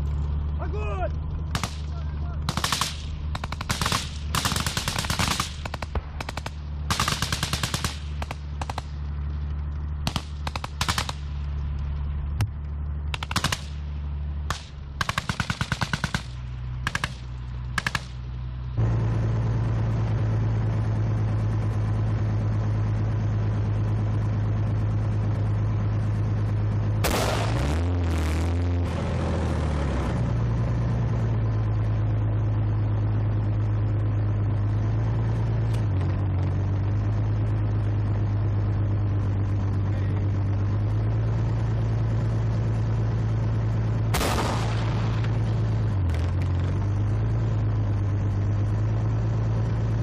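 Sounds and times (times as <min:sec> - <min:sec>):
engine drone: 0:00.0 - 0:50.0
machine gun fire bursts: 0:02.5 - 0:08.9, 0:10.0 - 0:11.2, 0:13.2 - 0:13.8, 0:14.5 - 0:17.2.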